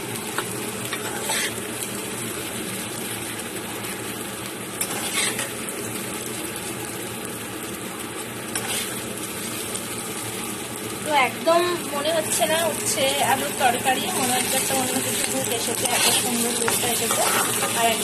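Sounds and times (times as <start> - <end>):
curry sizzling in a pan: 0.0 - 18.0
metal spatula scraping: 0.9 - 1.6, 4.8 - 5.5, 8.5 - 9.0, 14.0 - 18.0.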